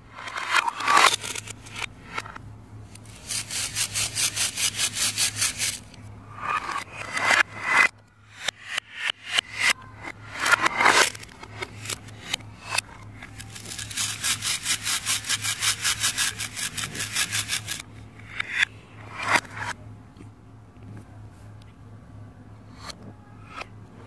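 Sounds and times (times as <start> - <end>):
rapid rasping plastic strokes: 0.2 - 7.4, 10.4 - 17.8.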